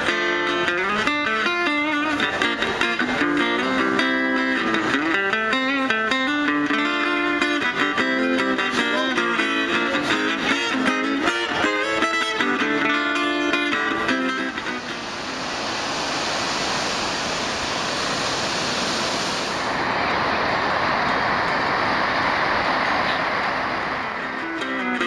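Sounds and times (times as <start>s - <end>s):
plucked guitar music: 0.0s - 15.6s, 24.2s - 25.0s
ocean surf rushing: 6.9s - 25.0s.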